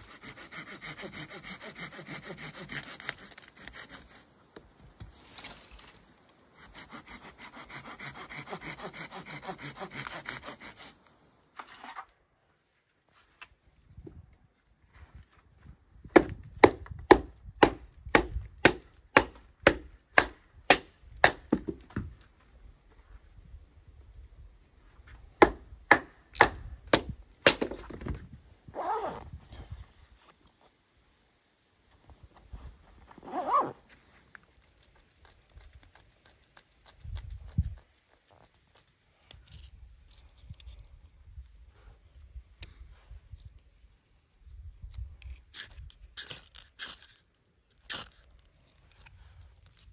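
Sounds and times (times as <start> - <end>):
pouch zipper pulled: 28.7 - 29.3, 33.2 - 33.8
small clicks and rustles: 42.6 - 49.9.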